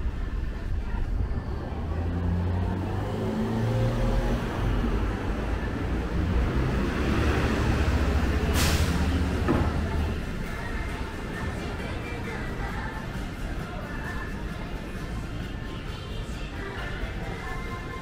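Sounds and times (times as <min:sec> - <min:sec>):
large vehicle engine running: 0:00.0 - 0:18.0
short sharp hiss: 0:08.5 - 0:09.1.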